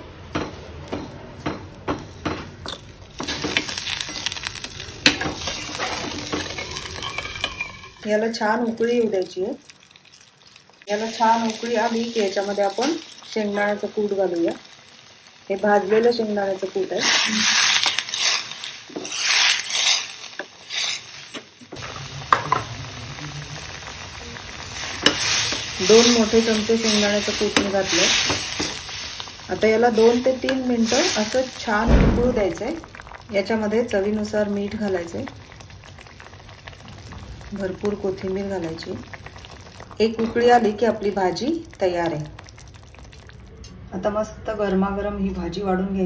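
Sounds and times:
curry bubbling: 0.0s - 43.9s
spoon tapping metal pan: 6.2s - 8.1s
spoon stirring curry: 23.6s - 31.3s.

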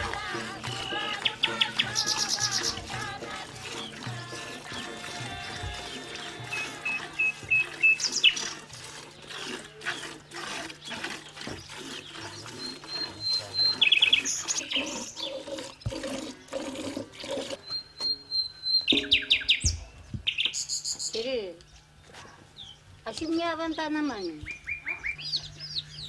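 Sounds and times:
birds chirping: 0.0s - 16.6s, 17.2s - 26.0s
milk squirting into a pail: 0.1s - 17.6s.

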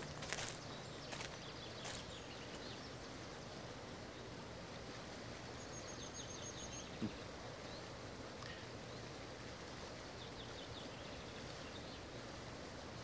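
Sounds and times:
small birds chirping: 0.0s - 4.3s.

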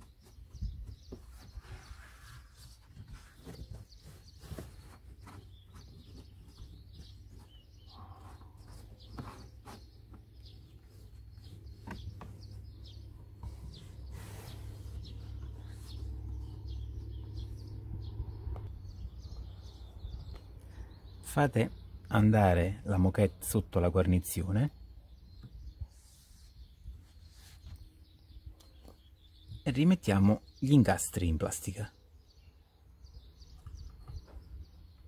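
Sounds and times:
carpet lining rustling: 0.0s - 16.4s
birds chirping faintly: 0.0s - 35.0s.

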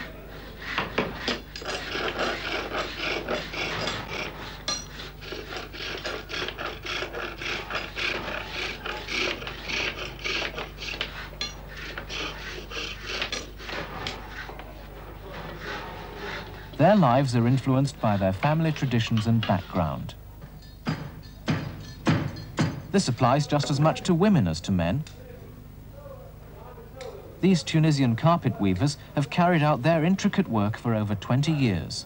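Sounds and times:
chisel scraping wood: 0.3s - 20.0s.

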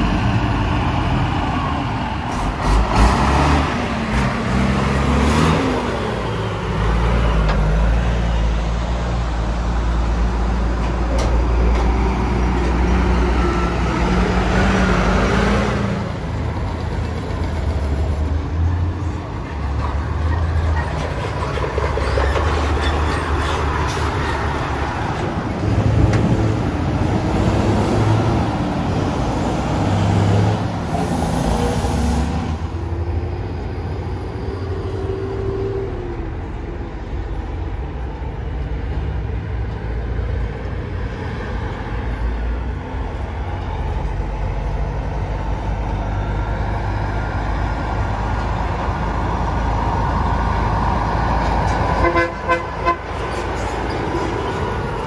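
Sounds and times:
road and traffic noise: 0.0s - 55.0s.

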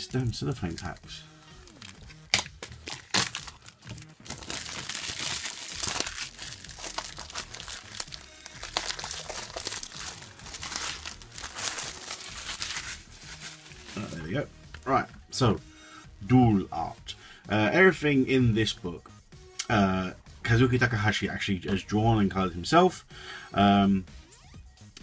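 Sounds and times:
cellophane crinkling and tearing: 1.6s - 14.2s.

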